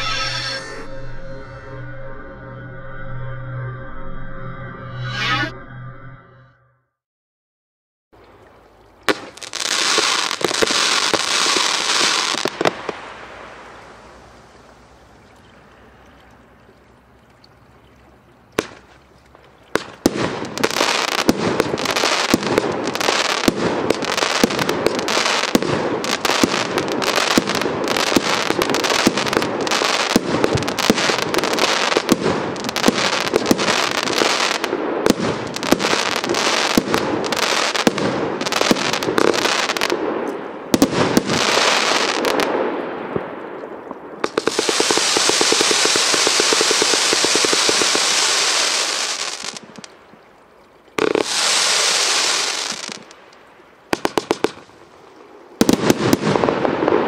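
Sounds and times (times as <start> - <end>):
firework hissing crackle: 9.1 - 15.0, 19.7 - 40.0, 40.7 - 42.7, 44.2 - 49.9, 51.0 - 53.2, 55.6 - 57.0
barrage of firework shots: 19.8 - 49.9, 53.9 - 54.7, 55.6 - 57.0.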